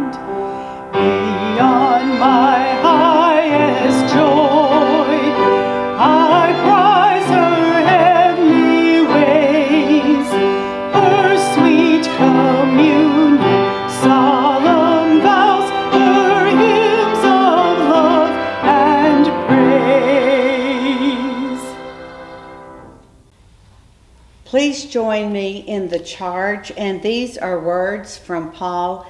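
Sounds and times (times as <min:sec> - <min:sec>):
instrumental accompaniment: 0:00.0 - 0:23.4
choir singing a hymn: 0:01.0 - 0:22.8.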